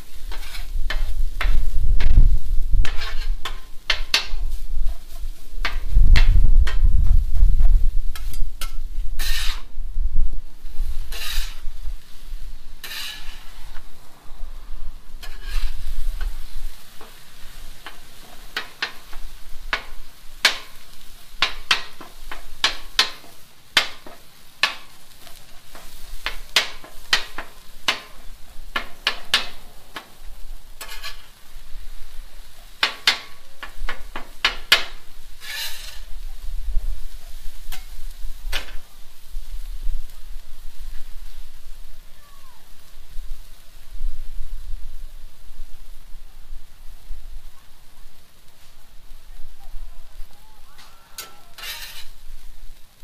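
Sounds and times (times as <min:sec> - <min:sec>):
meat sizzling on griddle: 0:00.0 - 0:53.0
metal spatula clacking on griddle: 0:00.2 - 0:02.2, 0:02.8 - 0:06.9, 0:08.1 - 0:09.7, 0:12.8 - 0:13.8, 0:15.2 - 0:31.4, 0:32.6 - 0:36.1, 0:37.7 - 0:38.8, 0:50.8 - 0:52.2.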